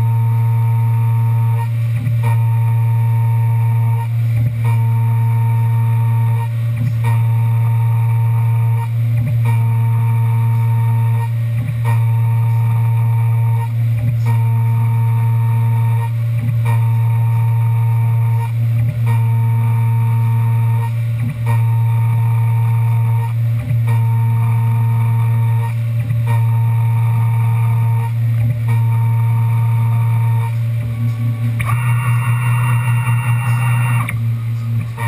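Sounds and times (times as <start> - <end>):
high machine tone: 0.0 - 35.0
mill spindle hum: 0.0 - 35.0.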